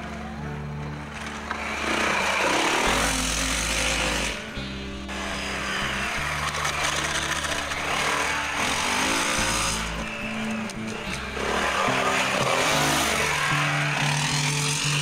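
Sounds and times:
background music with bass line: 0.0 - 15.0
dirt bike engines revving: 1.0 - 15.0.

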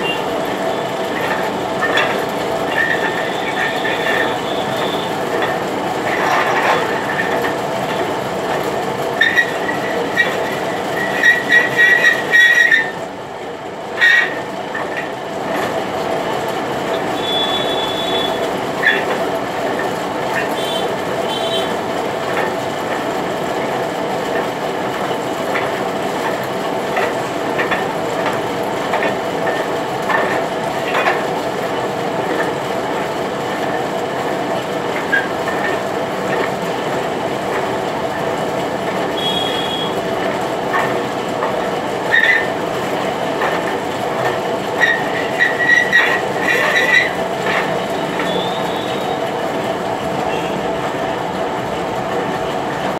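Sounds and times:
metal lathe running: 0.0 - 52.9
cutting tool squealing on metal: 11.0 - 12.9, 44.8 - 47.2.

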